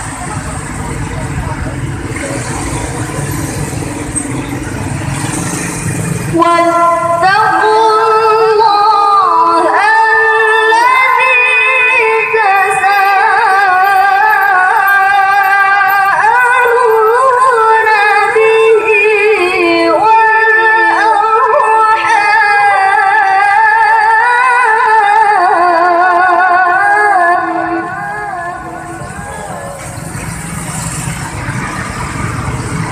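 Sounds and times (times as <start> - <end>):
woman reciting melodically: 6.3 - 28.8.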